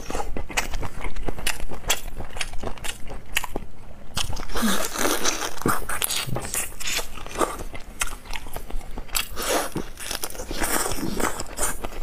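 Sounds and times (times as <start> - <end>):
wet chewing: 0.0 - 12.0.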